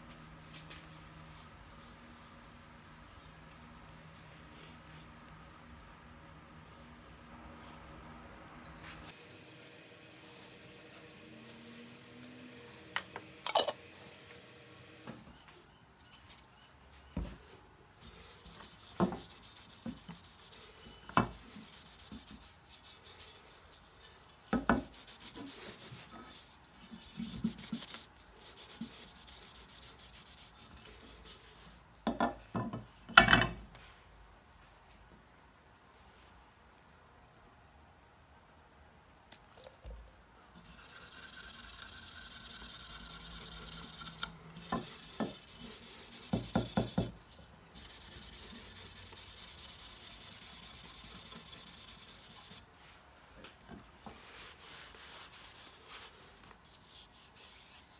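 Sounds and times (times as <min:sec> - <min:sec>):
cloth rubbing on wood: 0:18.0 - 0:31.7, 0:40.7 - 0:53.1, 0:53.9 - 0:57.9.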